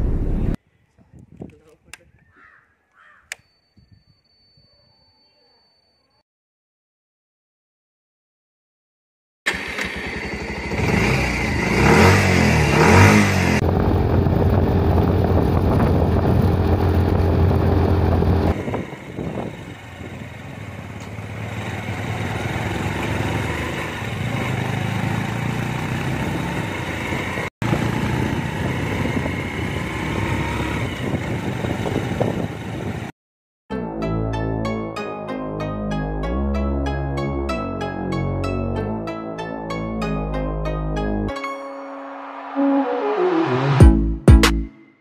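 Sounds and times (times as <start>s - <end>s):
motorcycle engine revving: 9.5s - 33.1s
motorcycle riding noise: 9.5s - 33.1s.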